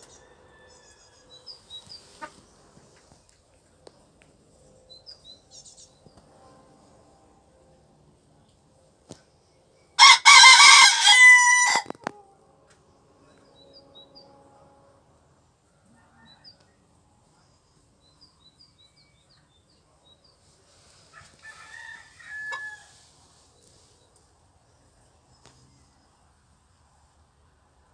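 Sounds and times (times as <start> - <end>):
rooster crowing: 0.0 - 1.6, 10.0 - 12.0, 15.9 - 16.6, 21.1 - 23.1
chicken clucking: 1.8 - 2.4.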